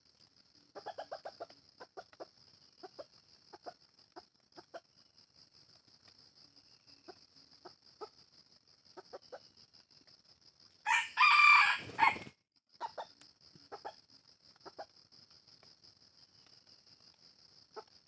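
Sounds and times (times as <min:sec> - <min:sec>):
soft clucks: 0:00.7 - 0:04.9, 0:08.9 - 0:09.5, 0:12.8 - 0:15.0
rooster crowing: 0:10.8 - 0:12.3.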